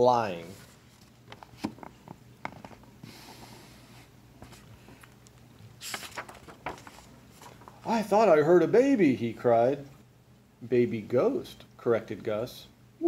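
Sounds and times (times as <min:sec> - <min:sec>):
book pages turning: 0:05.7 - 0:08.0
paper rustling: 0:05.8 - 0:08.0.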